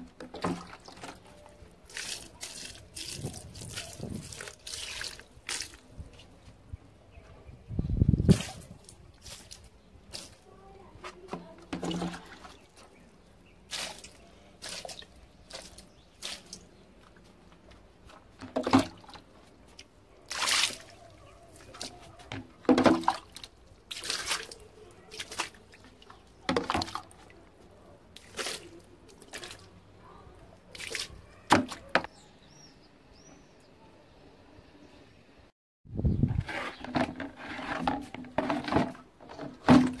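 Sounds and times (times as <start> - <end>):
water splashing on plants and tiles: 0.0 - 6.4, 8.2 - 10.6, 11.3 - 17.1, 18.3 - 32.1.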